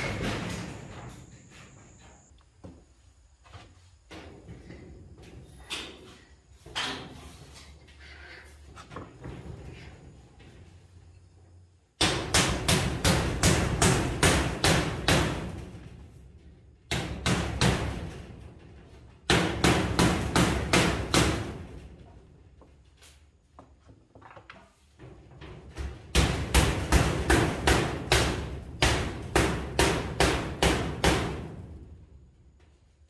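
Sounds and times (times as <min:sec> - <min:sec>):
hammer blows nailing: 0:12.0 - 0:15.8, 0:19.2 - 0:21.7, 0:26.1 - 0:31.6.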